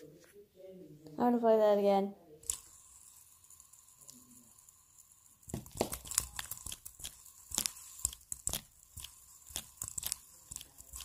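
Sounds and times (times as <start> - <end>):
fidget spinner clicks and rustles: 2.4 - 11.0.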